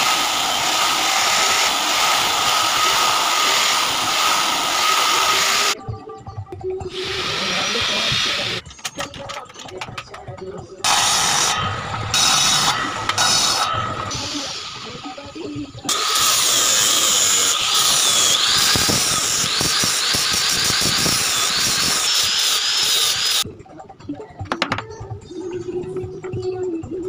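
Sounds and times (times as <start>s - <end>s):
angle grinder sanding wood: 0.0s - 5.8s, 6.9s - 8.6s, 10.9s - 15.1s, 15.9s - 23.4s
circular saw cutting wood: 0.0s - 5.8s, 6.9s - 8.6s, 10.9s - 23.4s.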